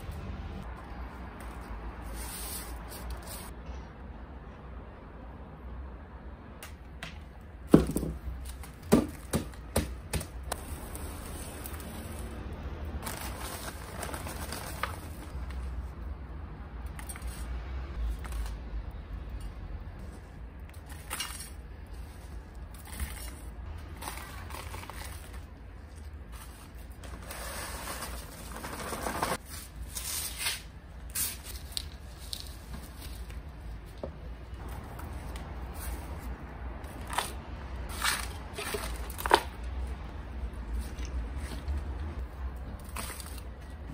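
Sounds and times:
rustling of newspaper: 10.5s - 15.9s, 21.0s - 33.9s.

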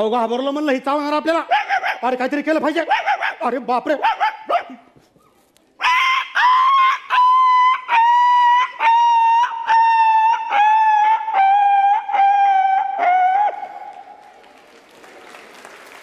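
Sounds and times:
man imitating dog barks: 1.3s - 4.9s, 5.8s - 13.7s.

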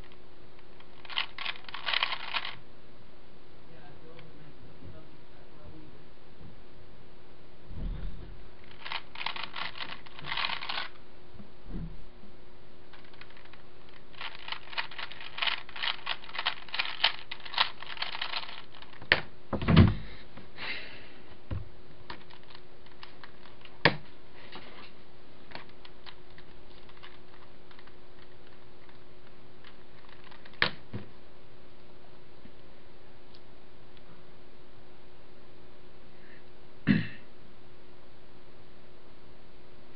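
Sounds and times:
steady low hum: 0.0s - 39.9s
puzzle cube layers clicking: 1.0s - 2.6s, 14.2s - 19.1s.

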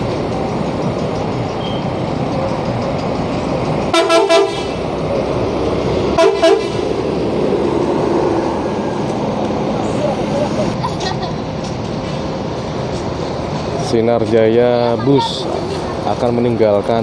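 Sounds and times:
bus engine rumbling: 0.0s - 17.0s
bus horn short blasts: 3.9s - 4.8s, 6.2s - 6.8s.

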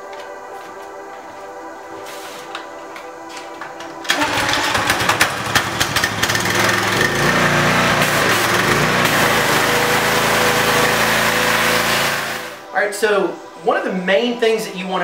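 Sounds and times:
small gasoline engine running: 4.1s - 12.6s
high-pressure water spray hissing: 6.9s - 12.6s.

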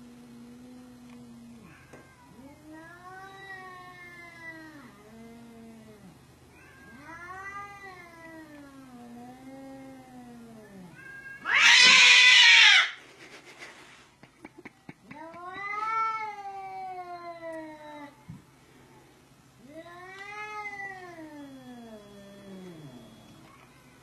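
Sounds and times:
cat meowing: 9.8s - 13.0s, 19.6s - 23.9s.

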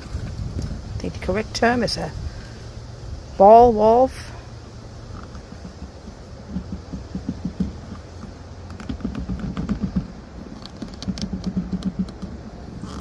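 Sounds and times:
plastic threads clicking and rubbing: 5.1s - 13.0s.

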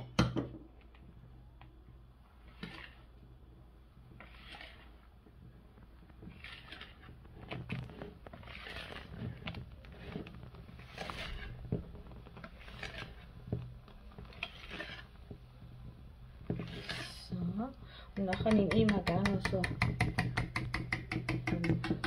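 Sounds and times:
whisk swishing batter: 0.8s - 17.5s, 18.1s - 22.0s
whisk wires clicking on bowl: 18.1s - 22.0s.

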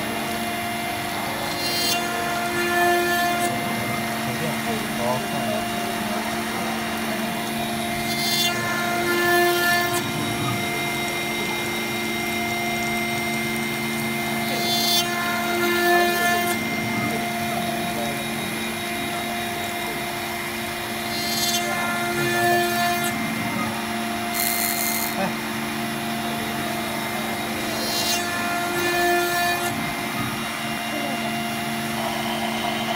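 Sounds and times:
router spindle milling metal: 0.0s - 32.9s.

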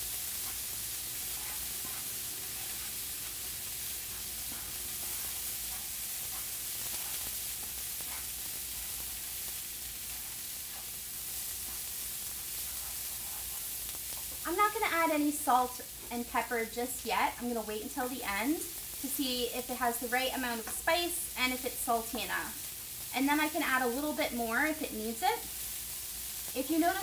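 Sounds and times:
food sizzling in a frying pan: 0.0s - 27.0s
wooden spoon scraping: 0.3s - 7.4s, 10.0s - 14.4s.

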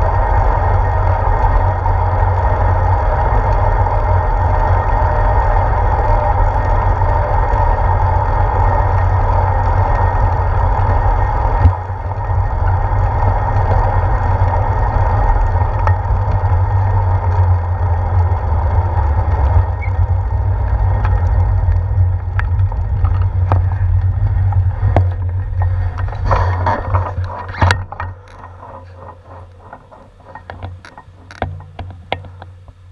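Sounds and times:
tyre-on-road noise: 0.0s - 32.9s
wind buffeting microphone: 0.0s - 32.9s
sharp clicks and knocks: 20.6s - 32.9s.

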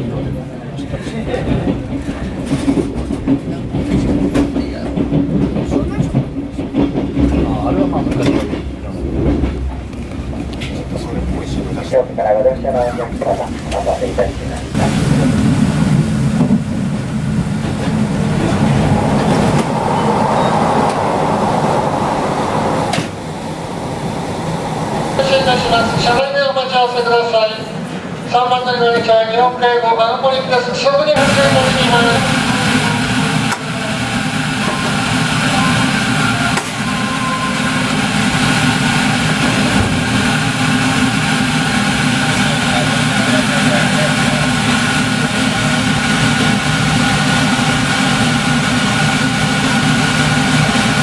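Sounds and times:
train wheels rumbling on track: 0.0s - 29.4s, 31.1s - 51.0s
higher even hum: 14.8s - 26.2s.

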